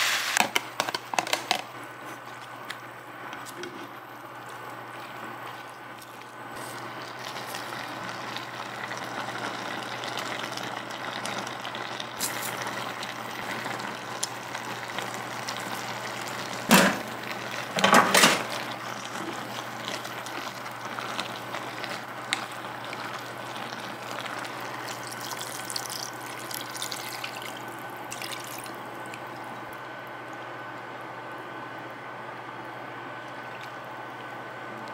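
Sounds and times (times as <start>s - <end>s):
food sizzling in a pot: 0.0s - 0.5s, 6.6s - 28.9s.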